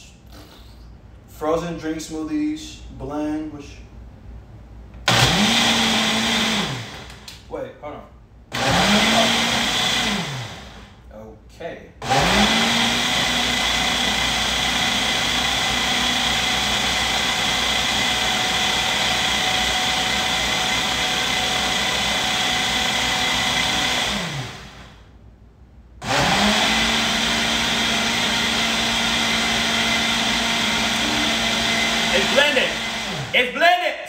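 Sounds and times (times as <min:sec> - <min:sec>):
blender motor running: 0:05.1 - 0:07.3, 0:08.5 - 0:10.9, 0:12.0 - 0:25.0, 0:26.0 - 0:33.4.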